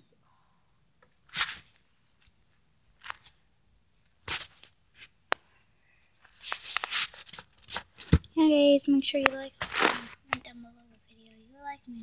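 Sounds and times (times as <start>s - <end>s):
fabric rustling: 1.3s - 3.4s, 4.1s - 5.2s, 9.3s - 10.4s.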